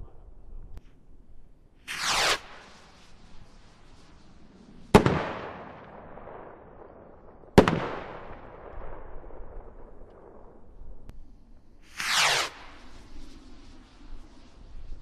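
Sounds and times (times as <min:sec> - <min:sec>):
firework rocket bangs with echo: 0:01.9 - 0:11.1, 0:11.9 - 0:13.8.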